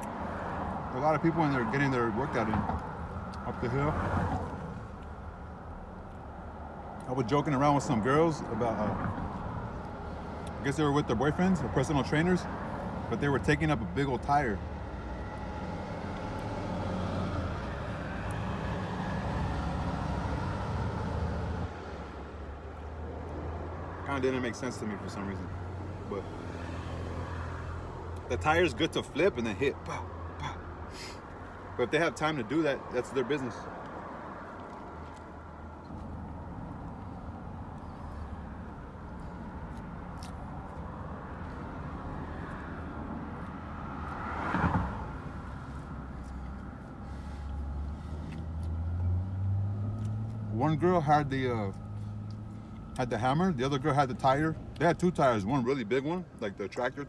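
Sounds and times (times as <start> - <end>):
vehicle passing whoosh: 39.5 - 50.5.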